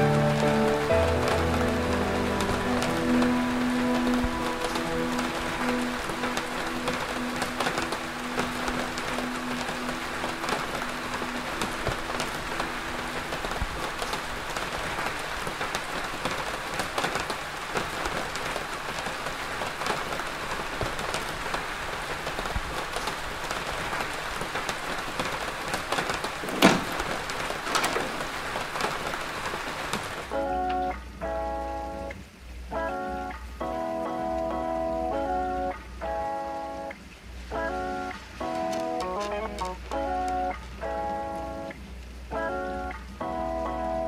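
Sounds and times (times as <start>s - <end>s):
steady rain falling: 0.0s - 44.0s
sharp loud crack: 26.4s - 28.6s.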